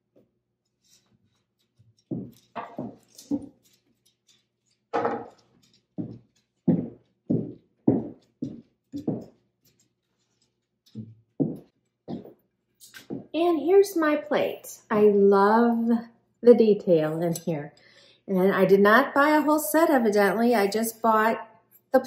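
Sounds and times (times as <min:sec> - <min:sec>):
footsteps on hardwood floor: 0:02.0 - 0:03.8, 0:05.0 - 0:09.8, 0:10.9 - 0:12.4, 0:13.0 - 0:13.4
wooden knocks on tabletop: 0:05.0 - 0:05.4.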